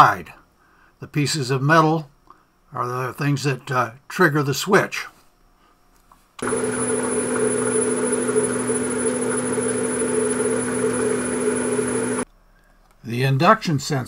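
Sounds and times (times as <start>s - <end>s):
milling machine motor humming: 6.4s - 12.2s
thin high whine: 6.4s - 12.2s.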